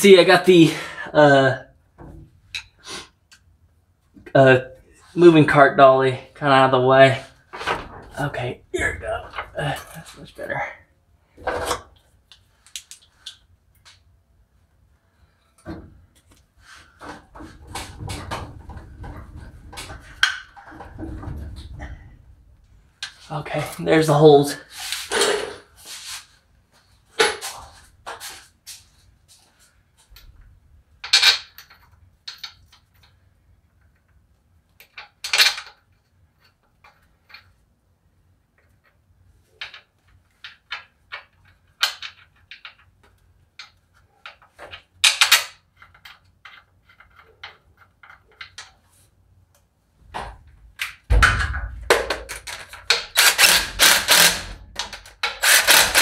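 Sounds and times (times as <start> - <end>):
cordless drill driving a bolt: 53.1 - 56.0.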